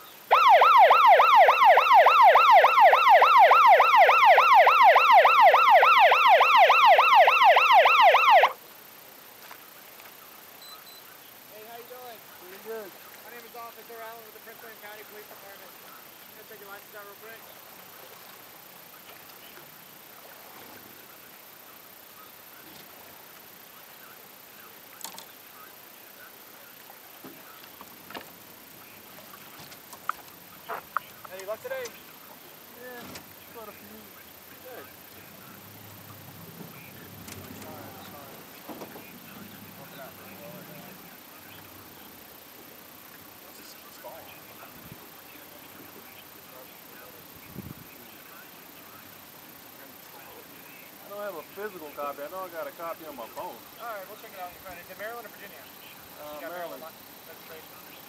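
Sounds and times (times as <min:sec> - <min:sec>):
faint steady hiss: 0:00.0 - 0:58.0
police siren yelp: 0:00.3 - 0:08.6.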